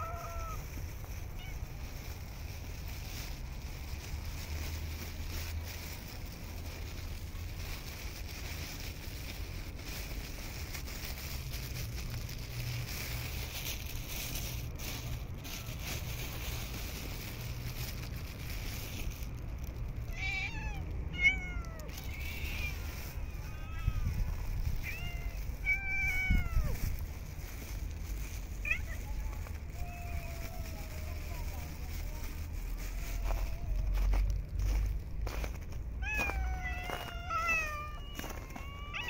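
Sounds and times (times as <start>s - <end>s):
cats meowing: 0.0s - 2.2s, 20.0s - 27.2s, 28.6s - 34.7s, 35.9s - 39.0s
steady low rumble: 0.3s - 38.0s.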